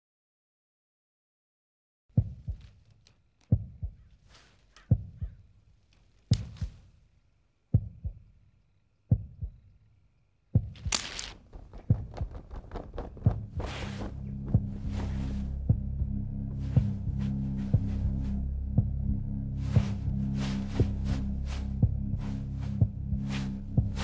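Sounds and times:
slow heartbeat: 0:02.1 - 0:05.5, 0:06.3 - 0:07.0, 0:07.7 - 0:08.4, 0:09.1 - 0:09.7, 0:10.5 - 0:24.0
short rushing hisses: 0:13.5 - 0:14.3.

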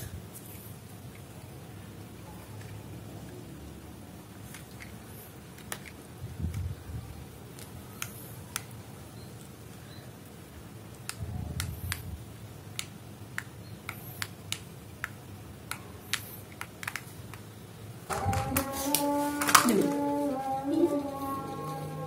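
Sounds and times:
plastic parts clicking: 0:04.4 - 0:06.0, 0:12.7 - 0:17.5, 0:18.1 - 0:20.0.

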